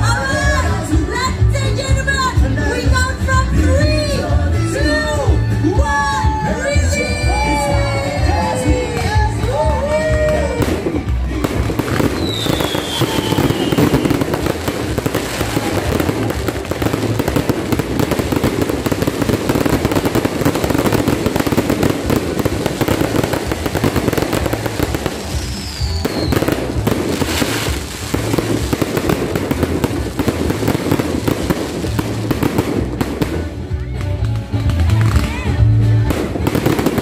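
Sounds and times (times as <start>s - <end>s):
music: 0.0s - 37.0s
fireworks crackling and popping: 6.3s - 37.0s
falling firework whistle: 11.9s - 14.4s, 25.2s - 27.8s.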